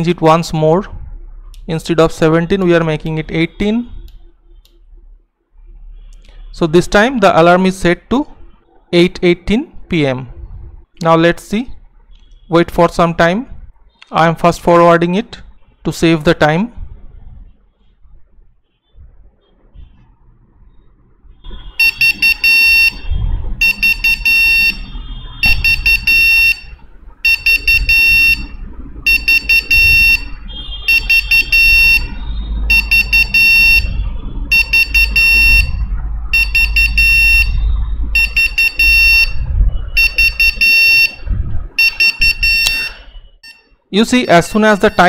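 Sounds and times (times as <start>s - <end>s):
alarm clock beeping: 21.7s - 37.6s, 38.2s - 39.4s, 40.0s - 41.2s, 41.8s - 45.0s.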